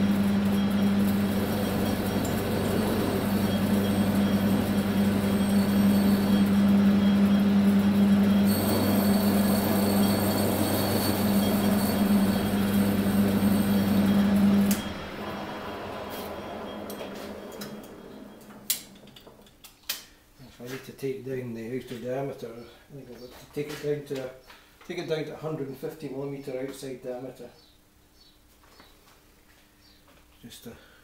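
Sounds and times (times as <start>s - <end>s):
lathe motor humming: 0.0s - 19.4s
lathe spindle running down: 0.0s - 19.4s.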